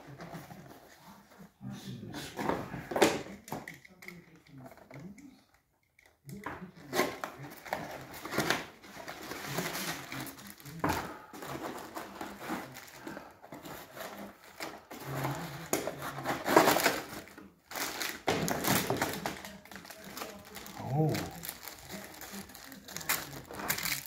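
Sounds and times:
plastic bags crinkling: 7.7 - 24.0.

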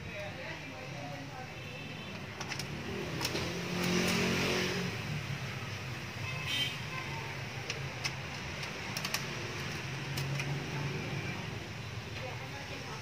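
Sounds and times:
small plastic clicks: 7.6 - 10.6.

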